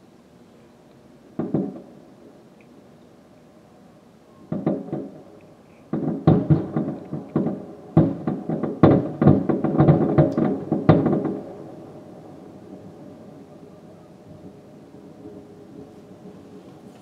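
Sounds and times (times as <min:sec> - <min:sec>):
fireworks booming with echo: 0:01.3 - 0:02.4, 0:04.4 - 0:14.8.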